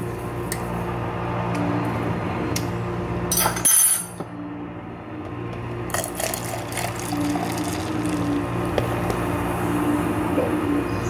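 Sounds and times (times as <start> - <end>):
milk pouring into a cup: 5.9 - 8.8.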